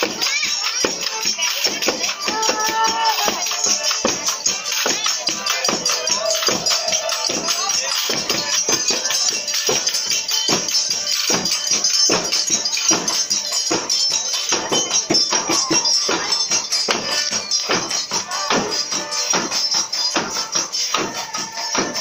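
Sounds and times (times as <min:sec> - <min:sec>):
tambourine jingles: 0:00.0 - 0:22.0.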